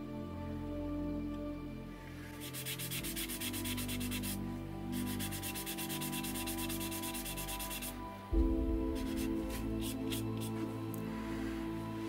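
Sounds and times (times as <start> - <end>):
soft background music: 0.0 - 12.0
sanding pad scratching plastic: 2.3 - 4.4.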